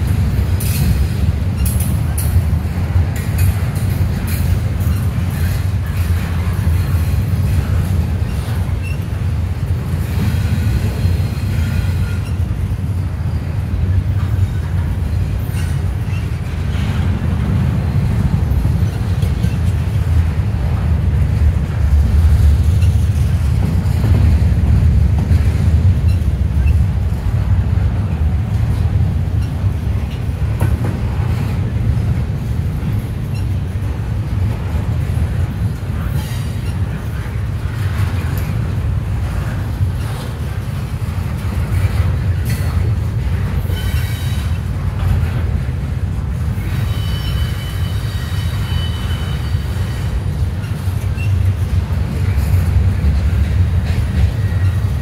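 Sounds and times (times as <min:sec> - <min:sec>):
train rumbling past: 0:00.0 - 0:55.0
high wheel squeal: 0:46.6 - 0:51.5.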